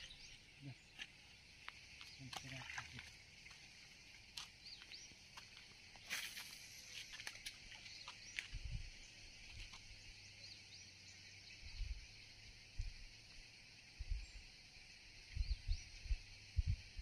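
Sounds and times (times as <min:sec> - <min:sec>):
bird chirps: 0:00.0 - 0:01.0
high-pitched insect chorus: 0:00.0 - 0:17.0.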